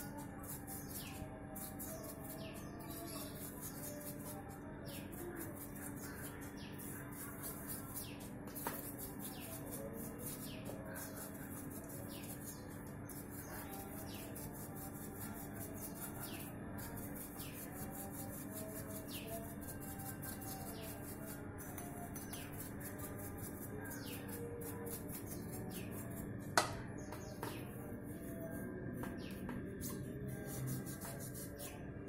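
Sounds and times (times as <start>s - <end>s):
brush scrubbing in liquid: 29.2s - 31.6s.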